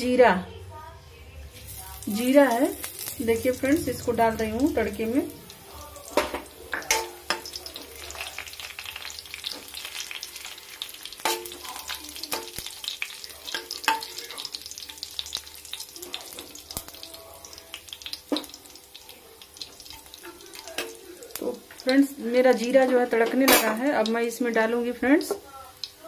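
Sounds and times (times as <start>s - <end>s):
spices sizzling in hot oil: 1.5s - 26.0s
metal spoon clinking on pan: 6.1s - 7.8s, 11.2s - 15.3s, 19.6s - 21.5s.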